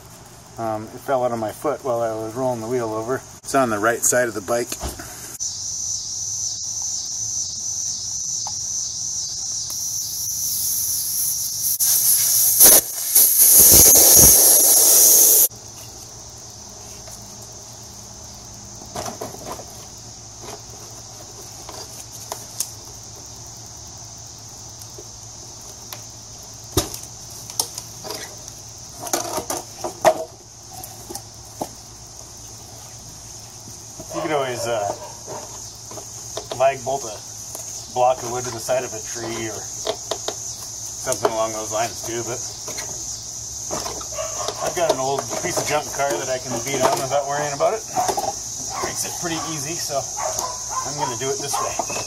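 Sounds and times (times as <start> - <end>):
air hissing out of a tyre: 9.7 - 15.8.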